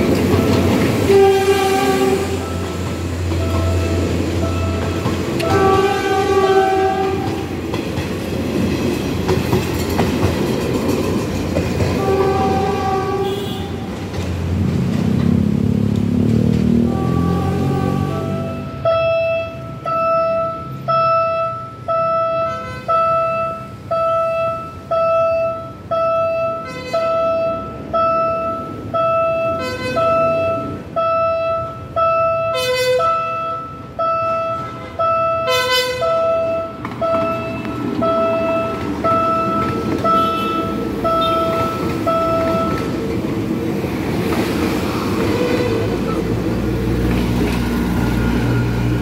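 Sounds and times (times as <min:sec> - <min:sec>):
crossing alarm beeping: 0:00.0 - 0:14.0, 0:16.8 - 0:43.7, 0:47.4 - 0:49.0
train rumble: 0:00.0 - 0:49.0
train horn blasts: 0:00.3 - 0:07.6, 0:11.9 - 0:14.1, 0:16.7 - 0:28.3, 0:29.0 - 0:42.9, 0:45.1 - 0:46.5.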